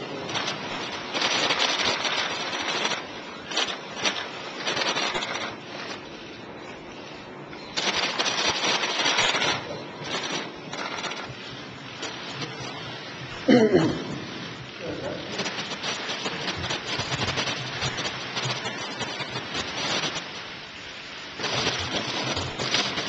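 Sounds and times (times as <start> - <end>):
camera shutters clicking rapidly: 0.4 - 5.9.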